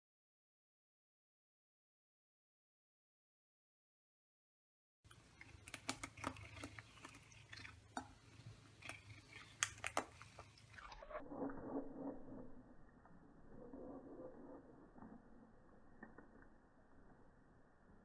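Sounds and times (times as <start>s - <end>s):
cat chewing hairbrush bristles: 5.1s - 11.9s.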